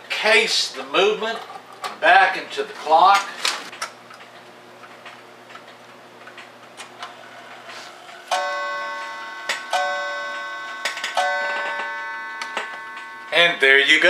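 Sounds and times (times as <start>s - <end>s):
clock striking: 8.3s - 14.0s.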